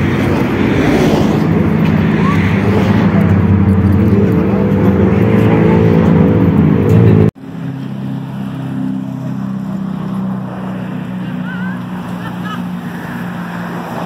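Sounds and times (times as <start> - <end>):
motor vehicle engine running: 0.0 - 14.0.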